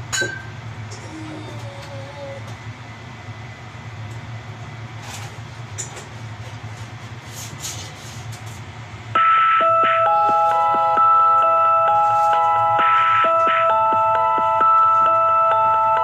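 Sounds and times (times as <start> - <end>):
steady low hum: 0.0 - 16.0
chiming music with bell-like notes: 9.6 - 16.0.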